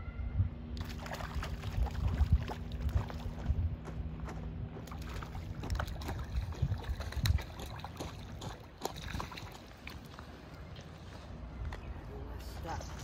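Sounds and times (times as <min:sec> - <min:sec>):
fish splashing at water surface: 0:00.8 - 0:03.3, 0:04.9 - 0:10.2.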